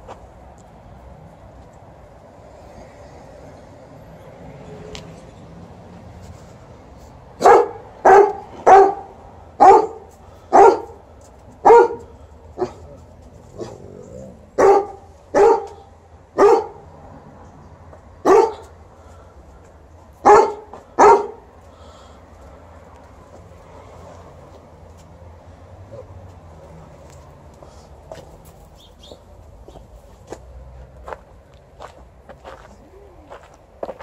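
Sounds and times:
dog barking: 7.4 - 11.0, 11.6 - 12.9, 14.6 - 16.9, 18.2 - 18.7, 20.2 - 21.5.

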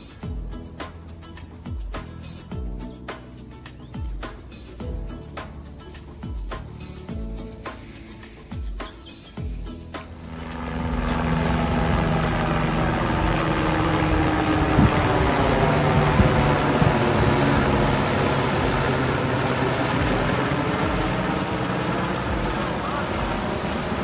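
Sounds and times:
low even hum: 10.0 - 24.0.

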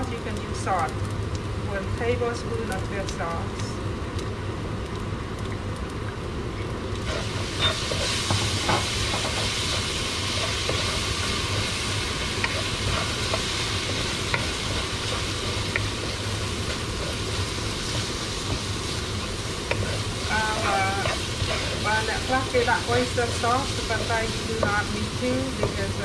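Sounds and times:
rice sizzling in a frying pan: 0.0 - 26.0
wooden spoon scraping and clicking: 7.1 - 19.0, 19.6 - 21.8.

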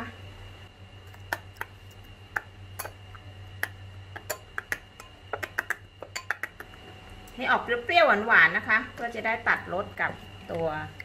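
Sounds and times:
faint steady hum: 0.0 - 11.0
spoon clinking against glass bowl: 4.3 - 5.2, 6.0 - 6.6.

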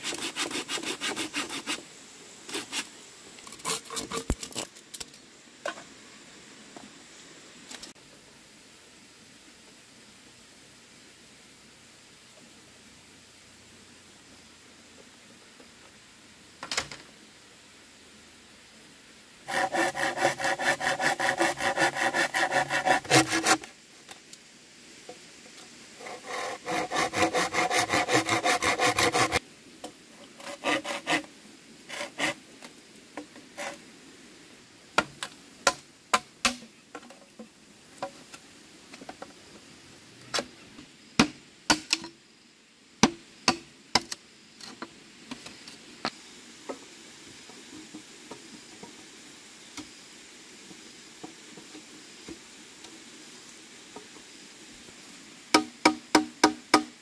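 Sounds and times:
rapid rasping strokes: 0.0 - 1.8, 19.5 - 23.7, 26.0 - 29.4.

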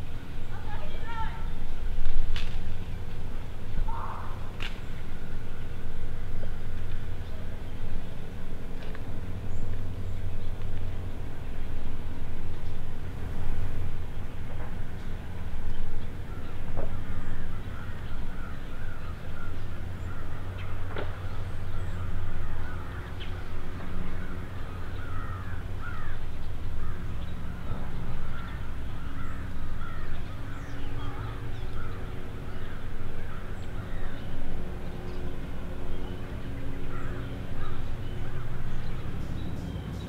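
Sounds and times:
steady low hum: 0.0 - 40.0
short bird calls: 3.8 - 5.9.

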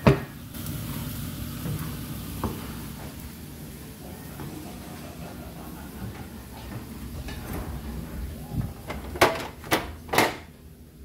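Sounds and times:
onions sizzling in a pan: 0.0 - 7.1
refrigerator shelf knocks and rattles: 8.6 - 10.5.

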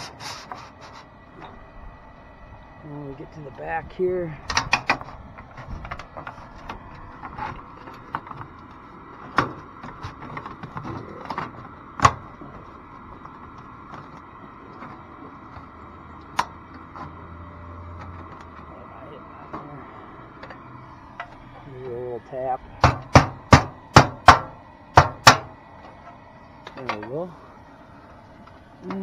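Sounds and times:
metal panel clicks and rattles: 4.4 - 8.5
sharp knocks: 22.8 - 25.5.

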